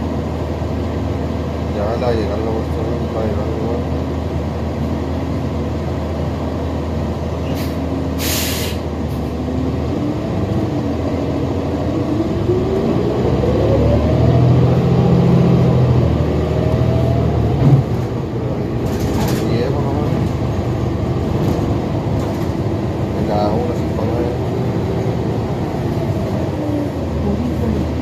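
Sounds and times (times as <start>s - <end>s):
bus engine humming: 0.0s - 28.0s
air brake hiss: 7.4s - 8.9s.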